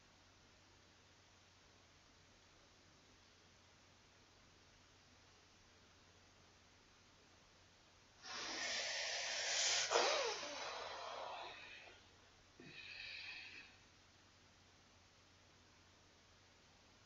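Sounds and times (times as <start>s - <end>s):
person breathing out heavily: 8.2s - 12.0s.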